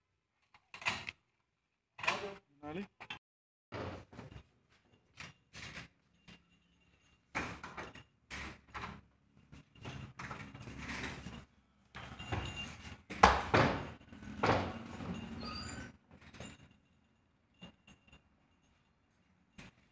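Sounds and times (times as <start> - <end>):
metal chain leash rattling: 4.0 - 19.9.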